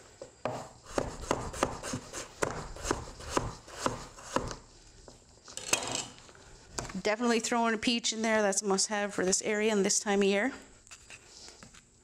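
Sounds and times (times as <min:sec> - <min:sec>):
knife chopping on wooden board: 0:00.4 - 0:04.6.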